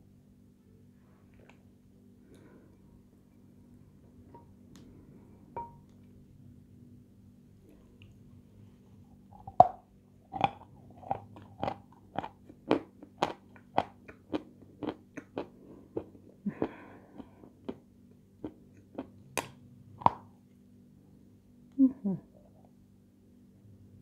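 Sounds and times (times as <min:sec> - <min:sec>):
crunching sweet being chewed: 0:10.3 - 0:19.6.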